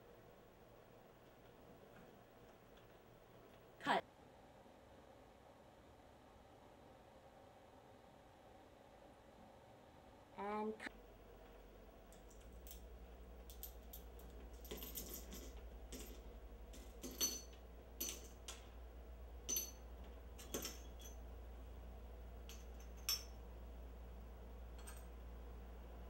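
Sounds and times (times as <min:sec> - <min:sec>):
faint low hum: 0:00.0 - 0:26.0
small objects clinking on wooden floor: 0:13.5 - 0:18.7, 0:20.4 - 0:21.2.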